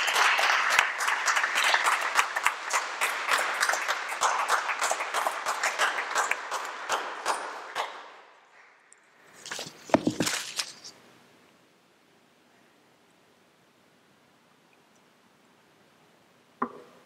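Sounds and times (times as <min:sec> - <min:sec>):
congregation applauding: 0:00.0 - 0:08.4.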